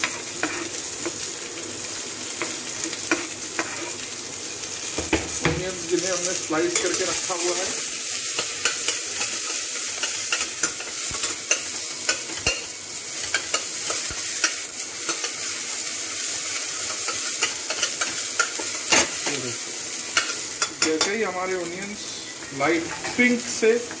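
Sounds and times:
spoon scraping against pot: 0.0s - 0.8s, 2.4s - 4.0s, 8.4s - 15.5s, 16.8s - 19.4s
onions sizzling in ghee: 0.0s - 24.0s.

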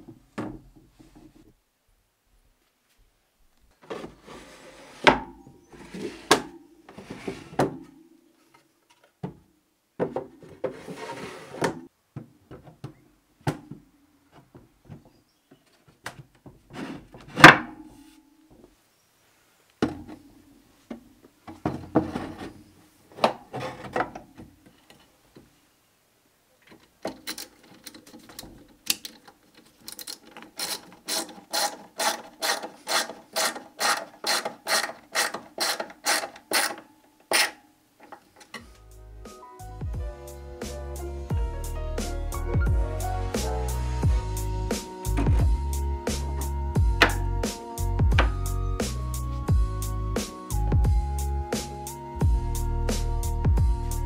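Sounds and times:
wooden drawers sliding and knocking: 3.8s - 7.9s, 10.0s - 11.9s, 15.9s - 17.8s, 21.5s - 24.6s, 45.1s - 45.5s, 47.0s - 47.3s.

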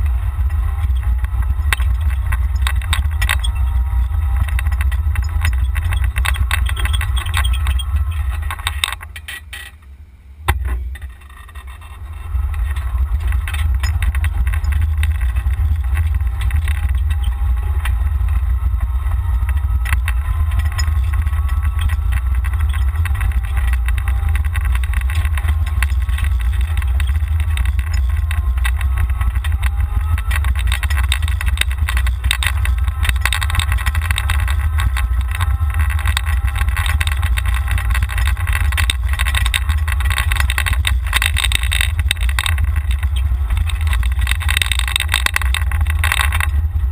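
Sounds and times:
wind rumble on microphone: 0.0s - 9.4s, 10.4s - 46.9s
golf cart driving: 0.0s - 46.9s.

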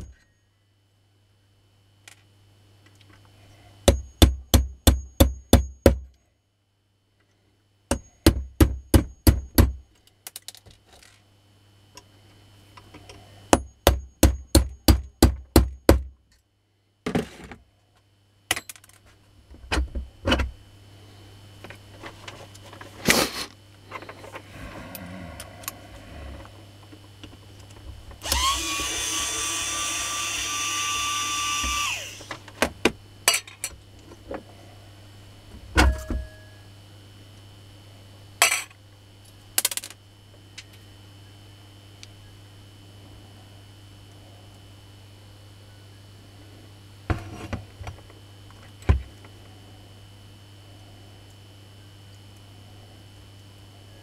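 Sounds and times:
electric drill whining: 28.2s - 32.4s.

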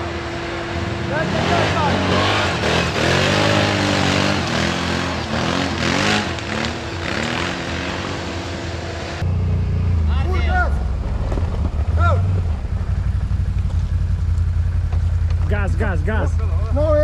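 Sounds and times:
atv engine revving: 0.0s - 17.0s.

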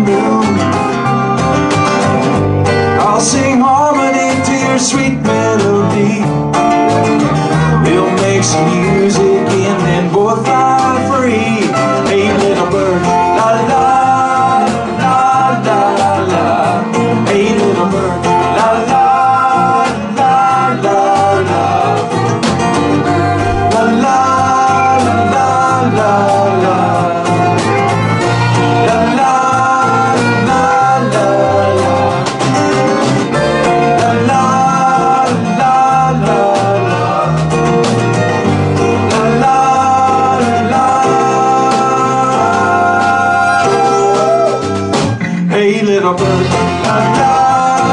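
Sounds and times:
acoustic and electric guitars: 0.0s - 47.9s
drum kit with cymbals: 10.5s - 47.9s
fiddle: 20.6s - 34.4s.

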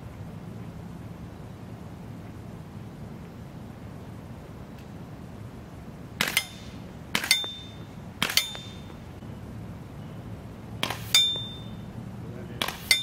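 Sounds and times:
rifle shots: 6.2s - 8.8s
round ringing on steel plate: 6.4s - 9.0s, 11.1s - 11.9s.

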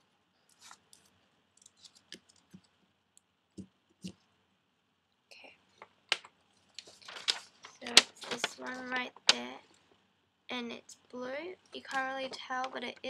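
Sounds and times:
paper rustling: 0.5s - 2.7s, 6.1s - 9.7s, 11.8s - 12.9s.

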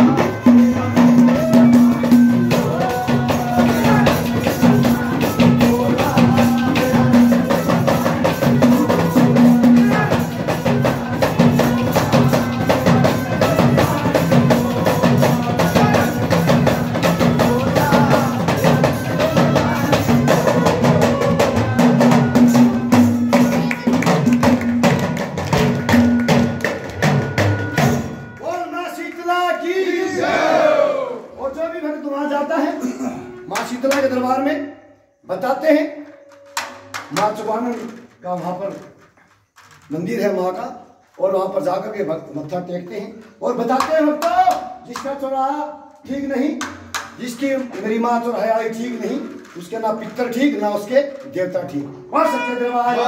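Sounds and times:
fast drum rhythm: 0.0s - 28.3s
clay pot percussion: 0.0s - 28.5s, 35.9s - 45.4s, 46.0s - 53.0s.

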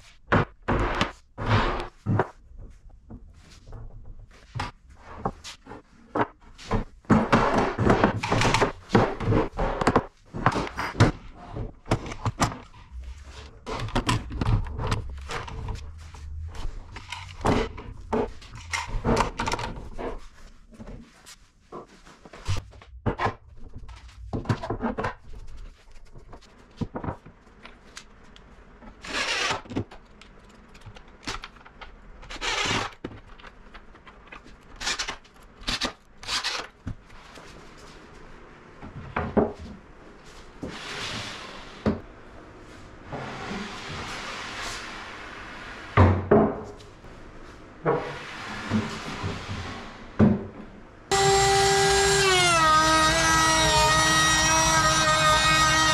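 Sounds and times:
cordless drill driving screws: 51.1s - 55.9s.

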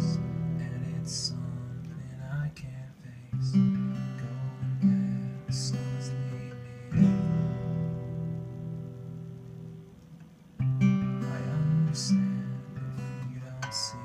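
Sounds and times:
acoustic guitar strumming chords: 0.0s - 14.0s.

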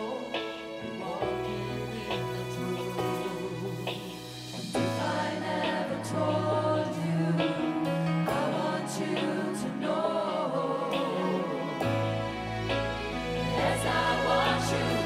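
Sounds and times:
gospel choir singing: 0.0s - 15.0s
instrumental accompaniment with bass: 0.0s - 15.0s.

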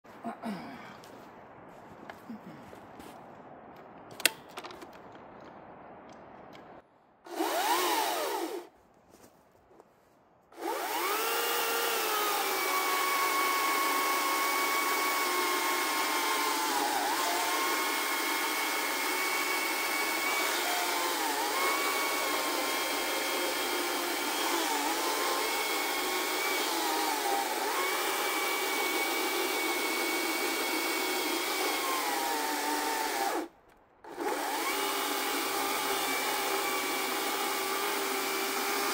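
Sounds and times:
electric chainsaw cutting log: 7.3s - 8.7s, 10.6s - 38.9s.

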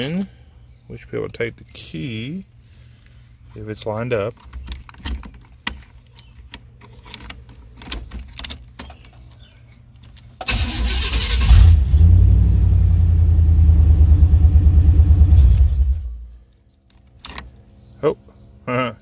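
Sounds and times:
car engine running: 11.8s - 16.1s.

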